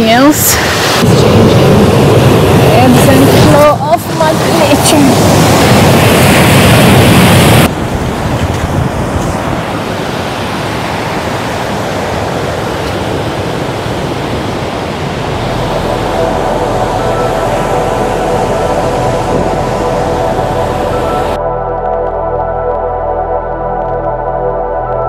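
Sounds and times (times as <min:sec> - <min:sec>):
sea surf: 0:00.0 - 0:21.4
wind: 0:00.0 - 0:25.0
soft ambient music: 0:15.1 - 0:25.0.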